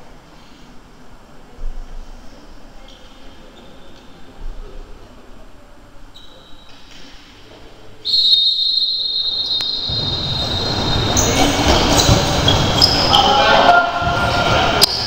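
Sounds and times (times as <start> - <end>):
general court noise: 6.2 - 15.0
referee's whistle blast: 8.0 - 11.4.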